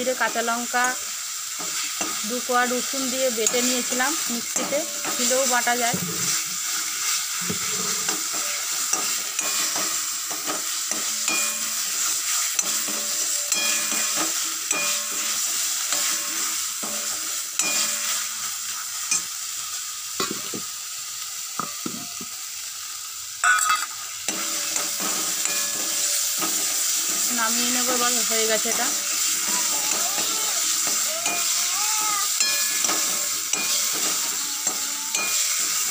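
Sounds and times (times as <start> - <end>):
paste sizzling in hot oil: 0.0 - 35.9
spatula scraping metal pan: 4.6 - 9.9.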